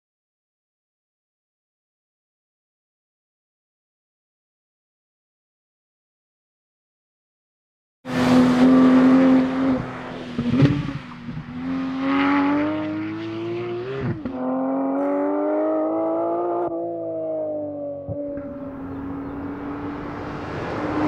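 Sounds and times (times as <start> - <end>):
sports car engine revving: 8.1 - 21.0.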